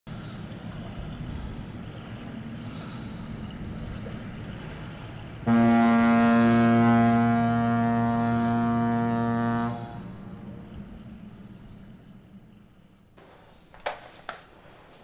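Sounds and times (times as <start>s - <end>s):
low wind noise: 0.1s - 13.8s
ship's horn blast: 5.4s - 12.1s.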